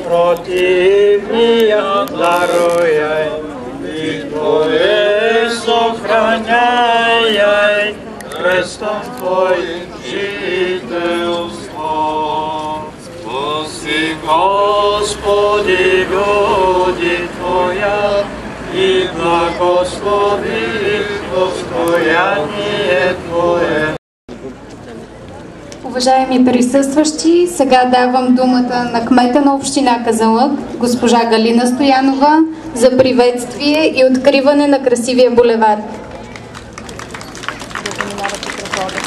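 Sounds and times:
priests chanting prayers: 0.0s - 24.0s.

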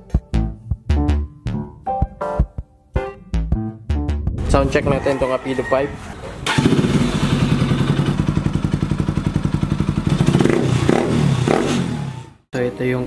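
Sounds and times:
motorcycle engine popping: 6.4s - 11.7s.

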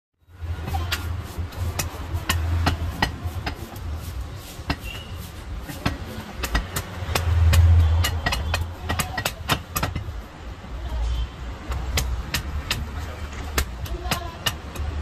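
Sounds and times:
cleaver chopping on wooden block: 0.7s - 3.8s, 4.7s - 10.2s, 11.6s - 15.0s.

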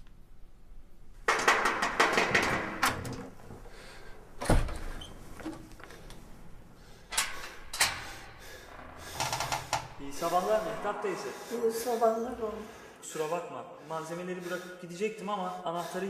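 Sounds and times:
knocking and rattling at door: 1.2s - 3.7s.

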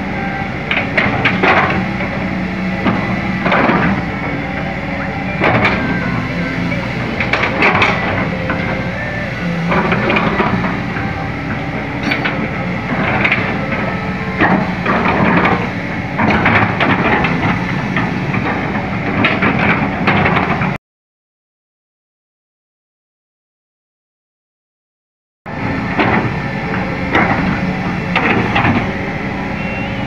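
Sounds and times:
excavator diesel engine running: 0.0s - 20.8s, 25.5s - 30.0s
metallic clanks and squeals: 0.5s - 18.6s.

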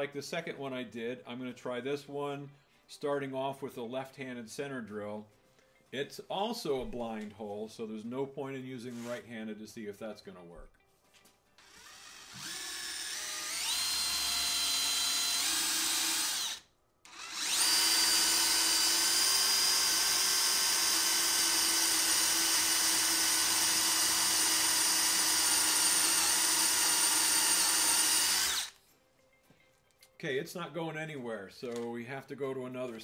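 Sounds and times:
cordless drill motor whine: 11.6s - 28.8s.

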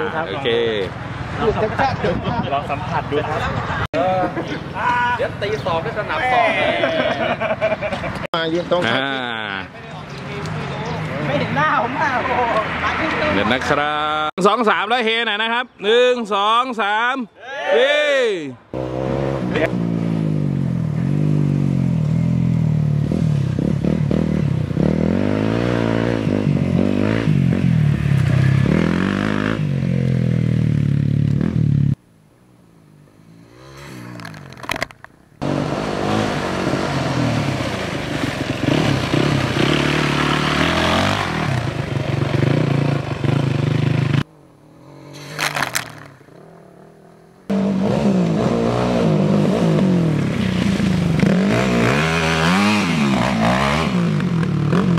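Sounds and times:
off-road motorcycle engines revving: 0.0s - 14.3s, 18.7s - 32.0s, 33.0s - 54.9s
distant motorcycle engine: 18.7s - 54.9s.

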